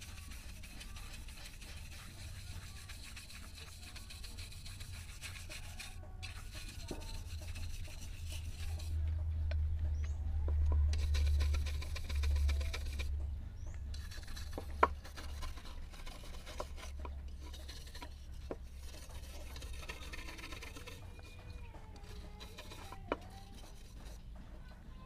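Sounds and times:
wire brush scrubbing metal: 0.0s - 9.0s, 10.9s - 13.1s, 13.9s - 24.3s
low rumble: 8.0s - 15.2s.

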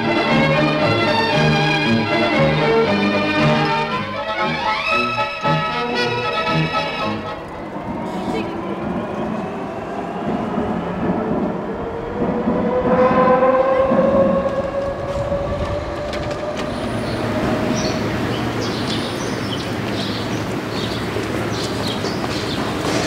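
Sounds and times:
metro train rumbling in tunnel: 0.0s - 23.0s.

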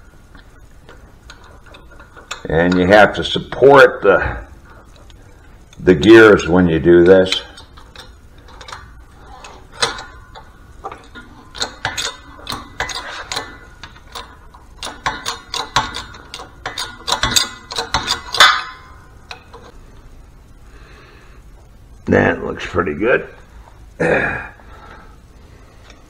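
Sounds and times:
steel parts clinking and knocking: 7.0s - 19.7s.

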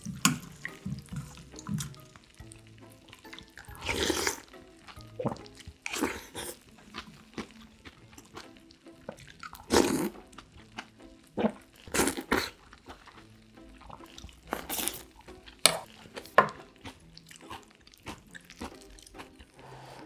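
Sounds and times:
chewing with wet clicks: 0.0s - 19.6s
loud slurps of broth: 3.6s - 4.5s, 5.2s - 6.7s, 9.2s - 10.3s, 11.4s - 13.1s, 13.9s - 15.1s.

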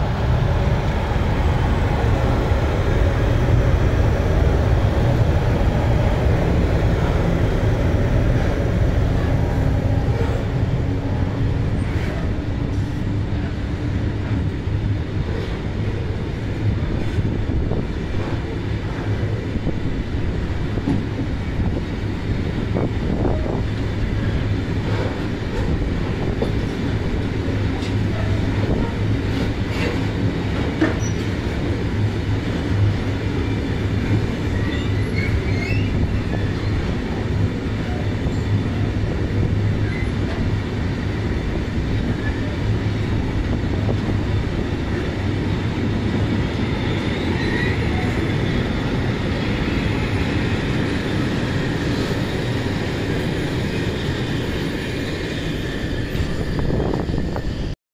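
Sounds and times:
train wheels rumbling on rail: 0.0s - 57.8s
faint wheel squeals: 34.5s - 36.8s.

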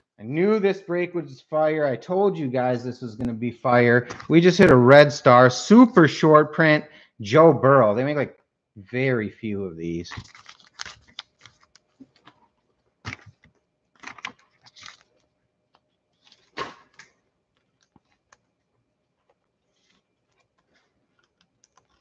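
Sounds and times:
trading cards rustling: 10.0s - 12.5s, 13.1s - 18.5s, 19.2s - 22.0s.

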